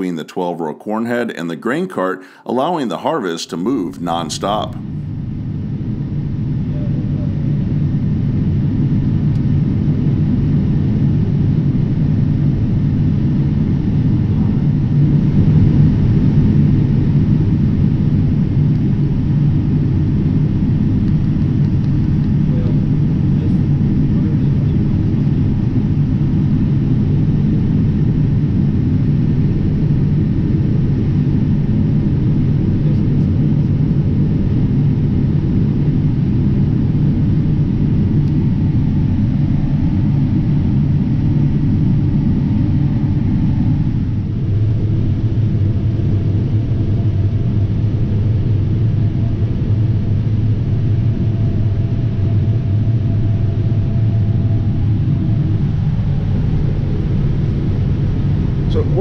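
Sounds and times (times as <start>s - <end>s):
combine harvester engine rumble: 54.5s - 59.0s.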